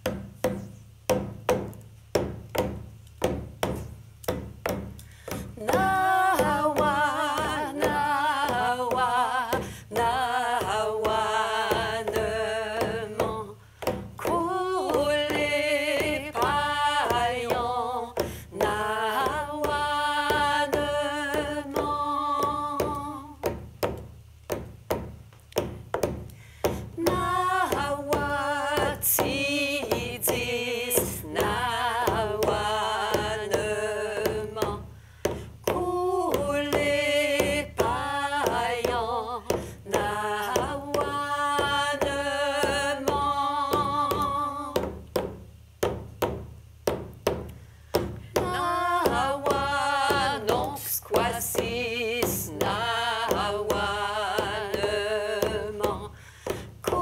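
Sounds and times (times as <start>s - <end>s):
frame drum beats: 0.0s - 57.0s
women singing: 5.2s - 23.6s, 26.7s - 45.2s, 48.3s - 57.0s.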